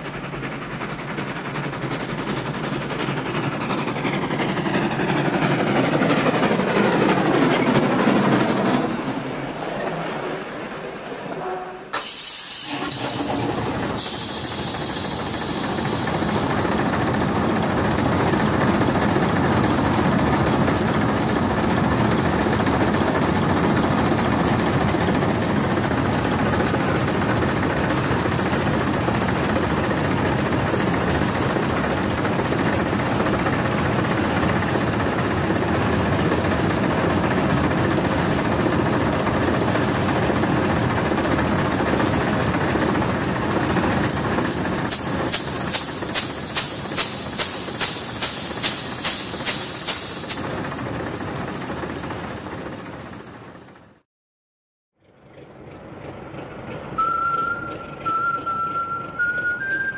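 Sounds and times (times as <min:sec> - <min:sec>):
heavy diesel engine running: 0:00.0 - 0:10.5, 0:11.9 - 0:54.0, 0:55.0 - 0:59.9
brief high hiss: 0:11.9 - 0:16.5, 0:44.9 - 0:50.4.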